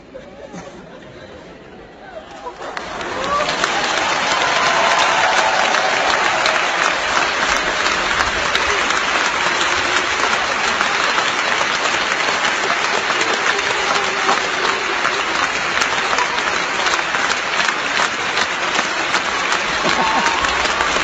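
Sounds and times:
audience applauding: 2.4 - 21.0.

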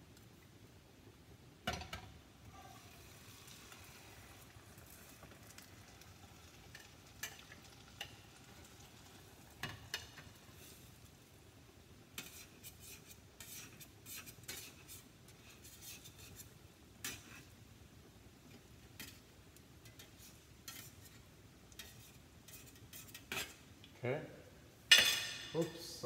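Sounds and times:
metal spatula scraping a plate: 12.2 - 17.6, 19.8 - 23.6.

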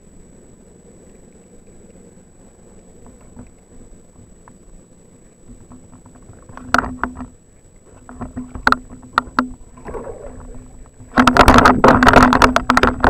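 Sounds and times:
low hum from reel: 0.0 - 13.0
rapid clicking and rattling: 8.0 - 13.0.

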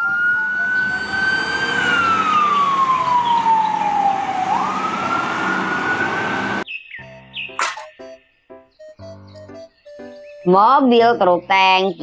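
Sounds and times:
fire engine siren wailing: 0.0 - 6.6.

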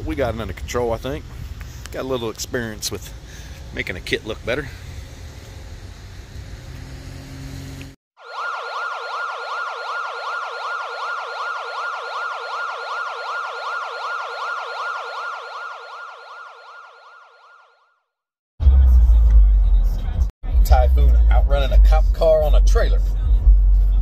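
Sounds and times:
outdoor background noise: 0.0 - 8.0
police siren yelping: 8.2 - 17.9.

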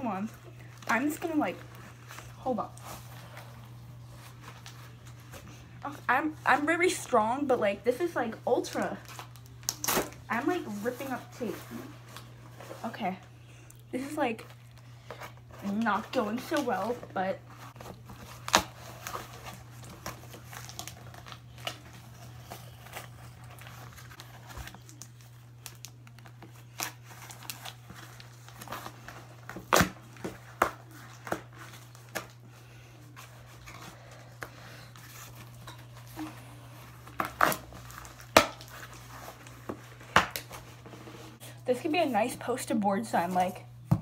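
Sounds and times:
packing tape tearing off cardboard: 9.0 - 10.2, 17.7 - 32.4, 36.9 - 41.0.

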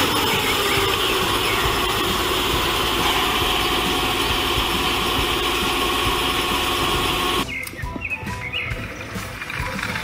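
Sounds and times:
truck engine idling: 0.0 - 7.4.

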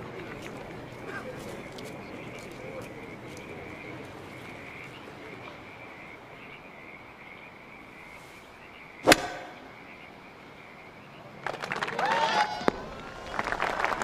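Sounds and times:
frog chorus trilling: 1.0 - 11.3
golf club hitting ball: 9.0 - 9.8.

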